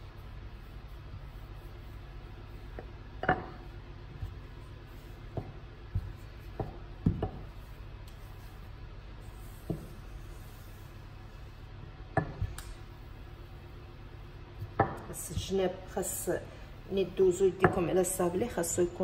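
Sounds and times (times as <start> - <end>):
low steady hum: 0.0 - 19.0
rolling pin knocking on countertop: 5.3 - 7.6, 9.6 - 10.0, 12.2 - 12.6, 14.6 - 15.5.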